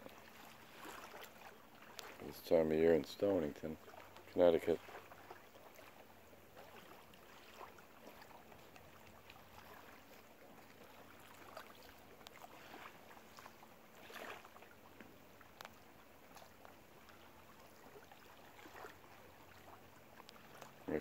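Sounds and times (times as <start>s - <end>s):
seawater lapping at shore: 0.0s - 21.0s
small ticks: 15.6s - 15.8s.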